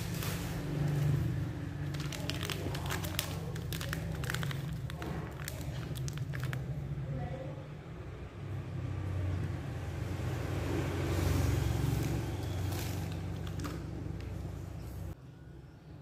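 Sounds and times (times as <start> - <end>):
plastic snack packet crinkling: 1.8 - 6.8, 12.4 - 13.9.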